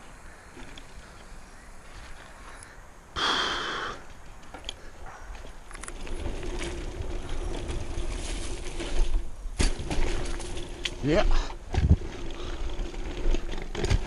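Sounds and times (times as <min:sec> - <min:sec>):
mountain bike rolling on dirt: 0:00.0 - 0:02.8, 0:04.0 - 0:14.0
loud breathy hiss: 0:03.1 - 0:04.1.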